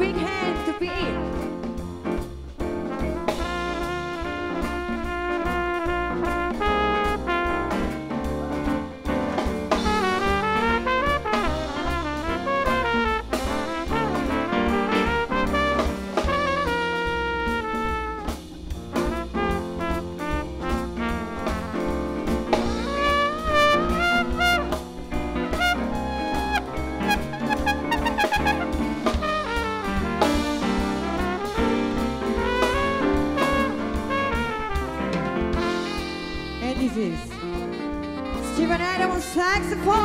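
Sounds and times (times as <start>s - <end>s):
horn section playing: 0.0s - 1.5s, 2.8s - 40.0s
jazz band playing: 0.0s - 40.0s.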